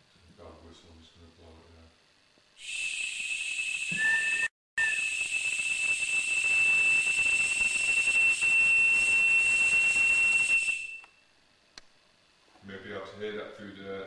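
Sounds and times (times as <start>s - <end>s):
steady high electronic whistle: 2.6s - 11.3s
loud hissing static: 5.0s - 14.0s.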